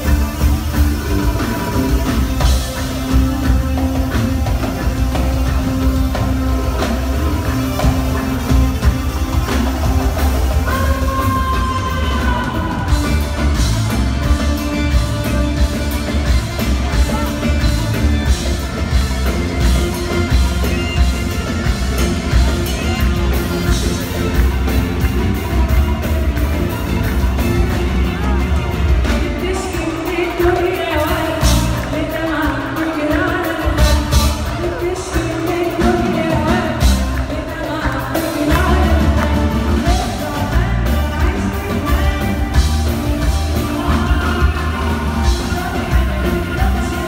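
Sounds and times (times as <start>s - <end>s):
woman singing: 0.0s - 18.4s, 29.1s - 47.0s
live band playing pop: 0.0s - 47.0s.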